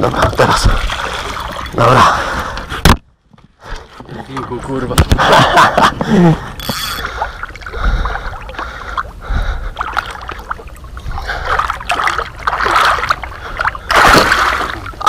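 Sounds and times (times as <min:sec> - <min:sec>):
fish splashing in water: 0:07.2 - 0:15.0.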